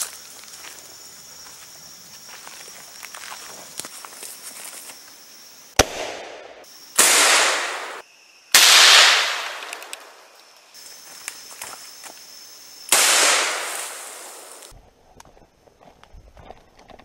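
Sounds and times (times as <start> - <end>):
footsteps in leaf litter: 0.0 - 5.0
shotgun blasts echoing: 5.8 - 8.0, 8.6 - 10.1, 12.9 - 14.5.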